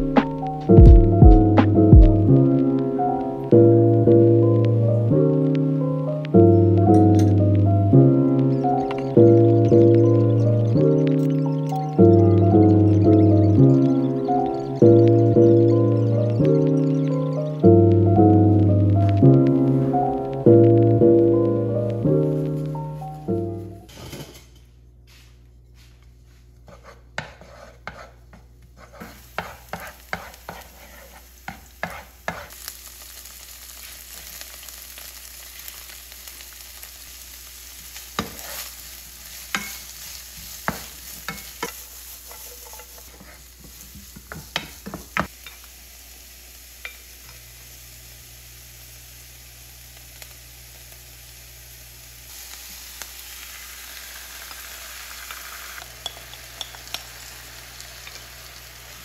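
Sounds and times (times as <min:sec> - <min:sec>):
vegetables sizzling in oil: 0:01.8 - 0:23.3, 0:28.8 - 0:59.0
wooden spatula scraping pan: 0:26.6 - 0:32.5, 0:38.2 - 0:38.7, 0:39.5 - 0:45.0.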